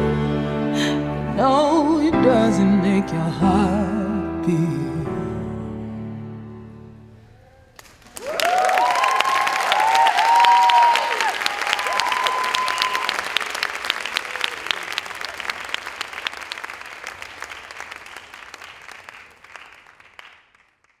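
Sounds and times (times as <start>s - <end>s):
audience applauding: 7.8s - 21.0s
audience cheering: 8.0s - 19.6s.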